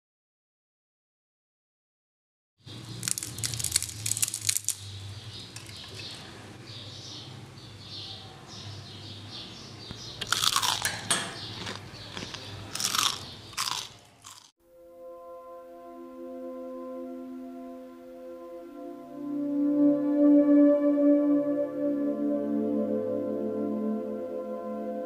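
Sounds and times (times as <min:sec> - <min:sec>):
crunching fried snacks: 0:02.7 - 0:06.2, 0:10.2 - 0:14.5.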